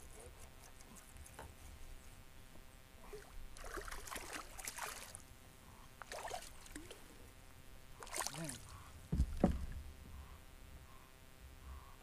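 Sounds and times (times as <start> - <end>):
fish splashing in water: 8.0 - 8.6.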